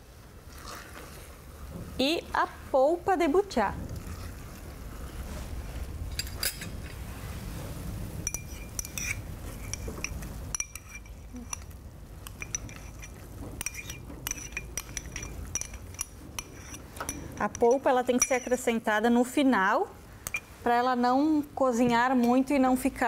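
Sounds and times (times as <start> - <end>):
low steady hum: 0.0 - 23.0
spoon clinking against pot: 8.3 - 18.7, 20.2 - 20.5.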